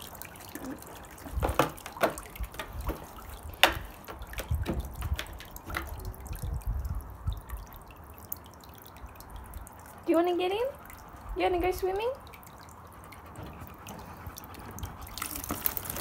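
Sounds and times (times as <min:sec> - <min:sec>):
dog splashing in water: 0:00.0 - 0:06.2, 0:13.2 - 0:16.0
hose filling pool: 0:00.0 - 0:16.0.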